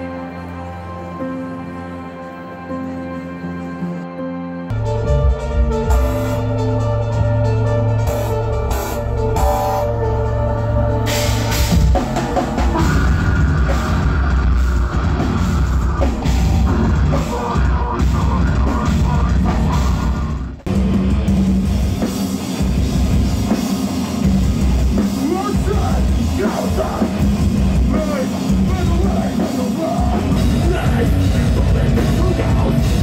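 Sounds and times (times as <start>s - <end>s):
heavy metal band playing: 0.0s - 33.0s.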